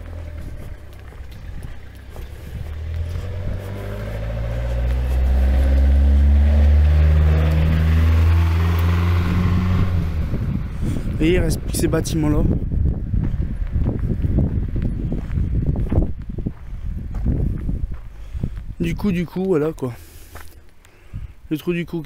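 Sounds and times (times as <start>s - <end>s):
van engine passing by: 0.0s - 15.8s.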